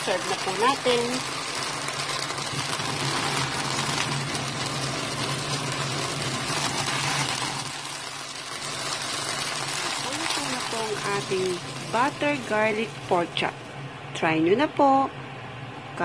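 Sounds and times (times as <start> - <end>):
meat sizzling in a frying pan: 0.0 - 13.8.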